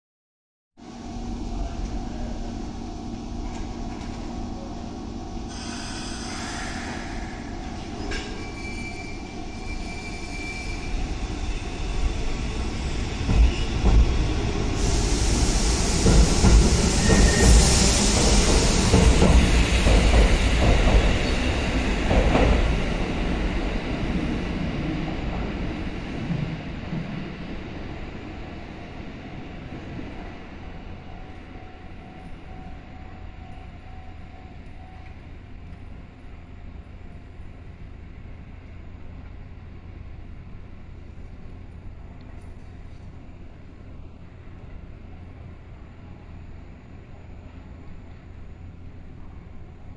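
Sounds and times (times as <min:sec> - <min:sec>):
electric train humming and pulling away: 0:00.8 - 0:49.9
high-pitched wheel squeal: 0:05.5 - 0:12.1, 0:16.9 - 0:17.7.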